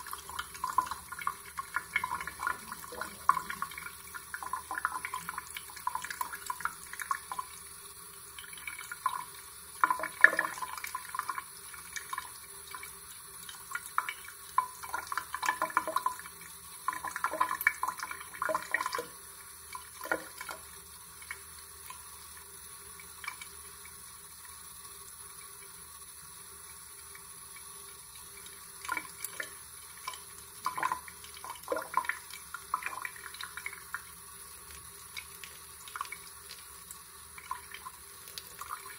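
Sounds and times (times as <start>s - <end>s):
water splashing and trickling: 0.0s - 7.6s, 28.3s - 38.9s
tap water running into sink: 0.0s - 38.9s.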